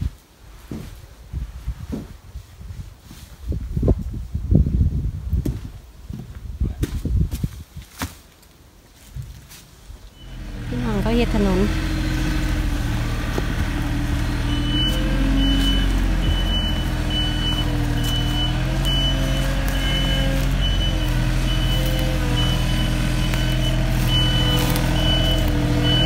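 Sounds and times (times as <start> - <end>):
reversing alarm beeping: 10.2 - 11.8, 13.8 - 26.0
tractor engine running: 10.2 - 26.0.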